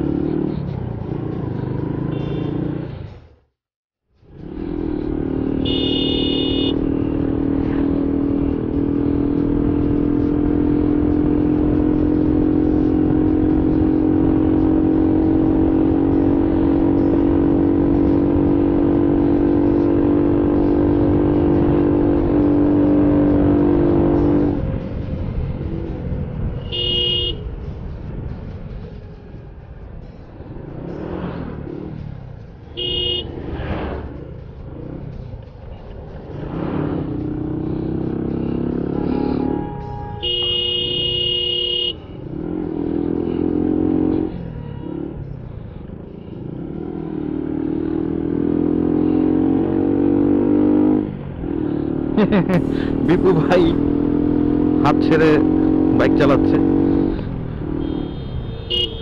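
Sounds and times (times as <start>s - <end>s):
motorcycle engine cruising: 0.0s - 3.3s, 4.2s - 59.0s
road and traffic noise: 0.0s - 59.0s
vehicle horns honking: 2.0s - 2.7s, 5.5s - 6.9s, 26.5s - 27.6s, 32.8s - 33.4s, 38.9s - 42.1s, 44.4s - 45.1s, 57.6s - 59.0s.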